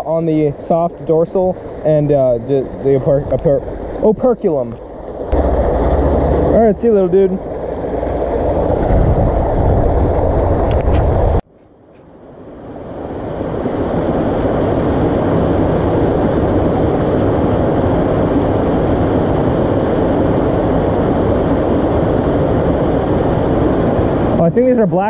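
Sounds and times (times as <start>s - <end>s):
water rushing over spillway: 0.0s - 11.4s.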